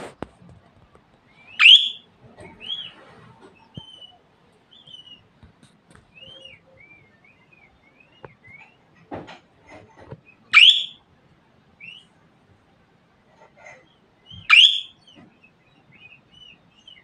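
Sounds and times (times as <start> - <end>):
budgerigar chirping: 1.4 - 2.9, 6.2 - 8.8, 10.3 - 11.0, 14.2 - 17.0.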